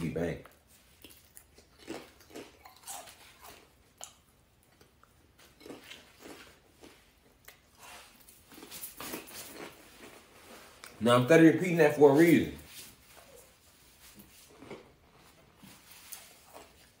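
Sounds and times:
chips crunching: 1.0 - 11.0.

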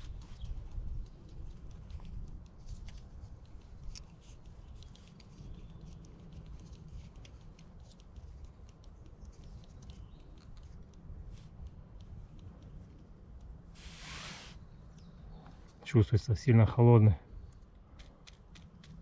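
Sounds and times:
plastic straw clicking and scratching: 0.0 - 13.6, 17.6 - 19.0.

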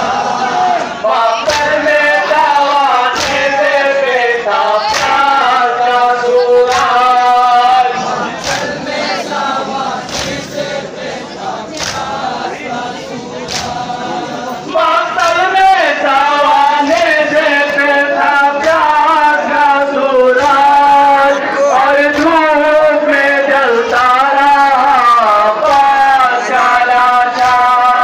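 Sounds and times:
men chanting in unison: 0.0 - 28.0
chest-beating slaps: 3.1 - 3.6, 4.9 - 5.3, 6.7 - 7.0, 8.4 - 10.7, 11.7 - 12.3, 13.4 - 14.0.

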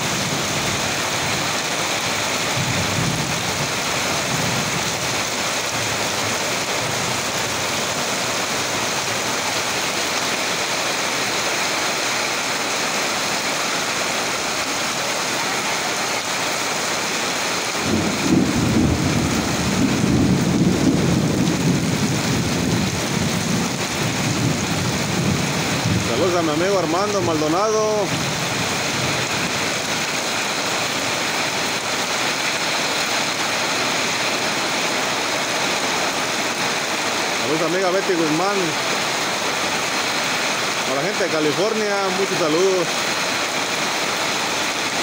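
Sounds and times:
thunder rumbling: 0.0 - 9.7, 17.4 - 27.4
heavy rain pouring: 0.0 - 45.0.

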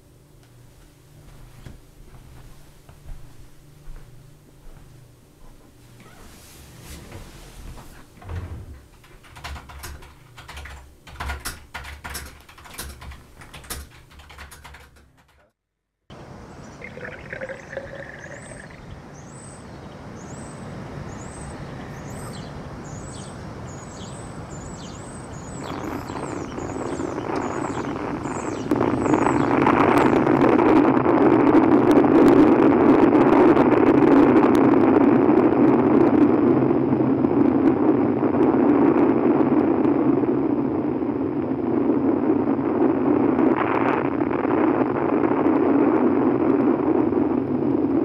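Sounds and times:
wind: 0.0 - 15.1, 16.1 - 48.0
keyboard typing clicks: 8.9 - 15.5
steady rushing noise: 16.1 - 48.0
birds chirping: 16.2 - 30.4.

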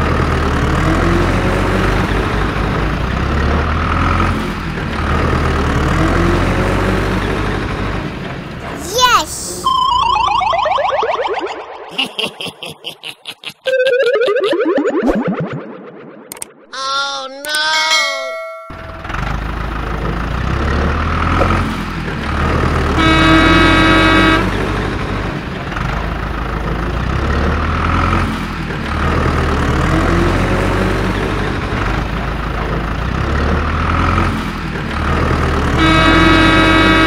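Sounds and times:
heavy vehicle engine rumble: 0.0 - 9.6, 18.8 - 37.0
horn tooting: 22.9 - 24.7, 35.8 - 37.0.

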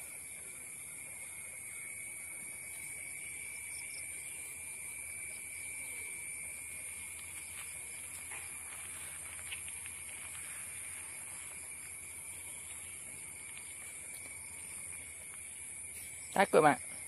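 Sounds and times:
insects droning: 0.0 - 17.0
faint ticks: 7.0 - 16.1.

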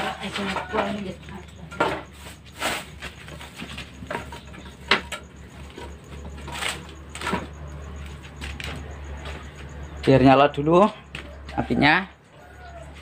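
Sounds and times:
firewood sticks knocking: 0.0 - 10.1.

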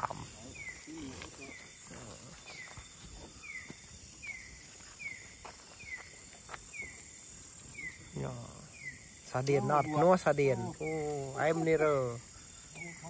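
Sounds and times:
insect drone: 0.0 - 13.0.

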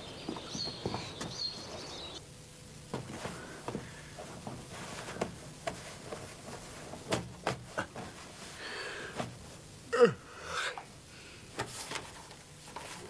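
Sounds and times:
low room hum: 0.0 - 13.0
cloth rustling: 2.9 - 9.7.

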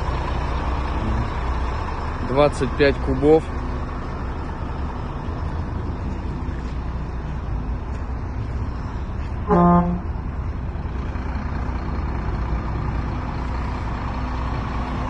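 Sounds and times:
vehicle horn toot: 9.5 - 10.1.

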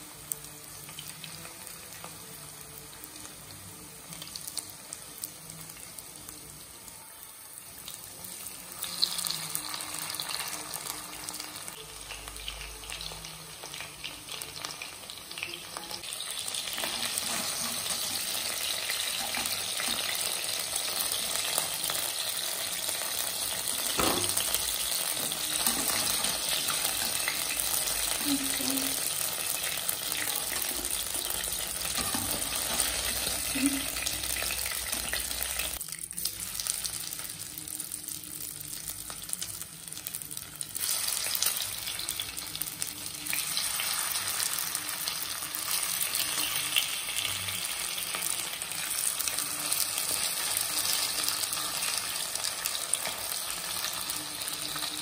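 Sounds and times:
chicken frying in hot oil: 0.0 - 55.0.

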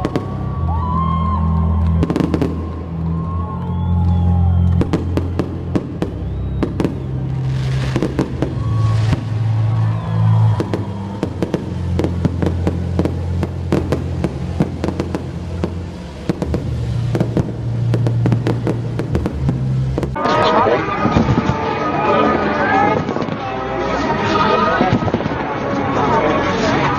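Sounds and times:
fireworks popping and crackling: 0.0 - 22.2, 22.8 - 23.6, 24.3 - 26.0
music with low bass notes: 0.0 - 26.9
firework hissing burst: 5.8 - 21.7.

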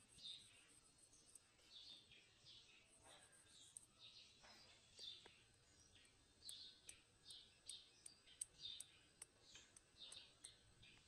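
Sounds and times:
faint high bird chirps: 0.0 - 11.0
light clicks of sticks: 6.4 - 11.0.

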